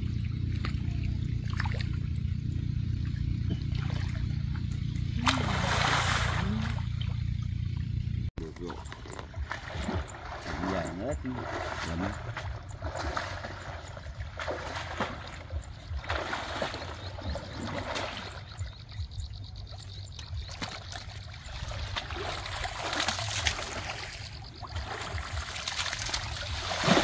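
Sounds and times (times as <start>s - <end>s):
water sloshing and splashing: 0.0s - 27.0s.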